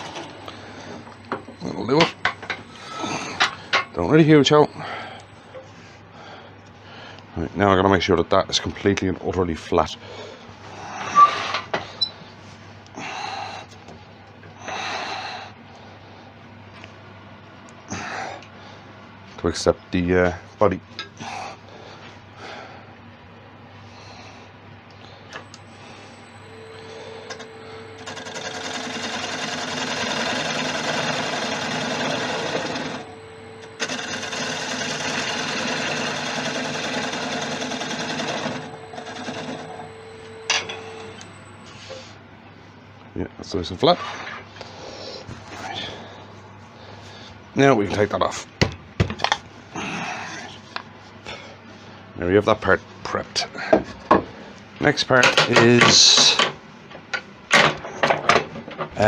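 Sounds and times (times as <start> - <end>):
wood lathe humming: 25.5 - 42.0.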